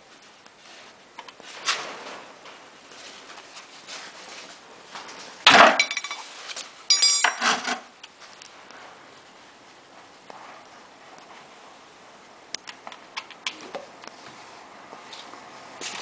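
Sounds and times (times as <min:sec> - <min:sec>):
metal wrench clattering: 0:05.8 - 0:06.3, 0:06.9 - 0:07.6.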